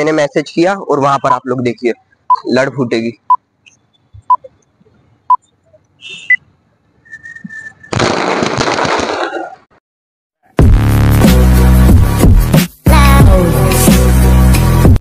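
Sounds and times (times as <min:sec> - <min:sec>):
firecracker fizzing and crackling: 0:07.9 - 0:09.5.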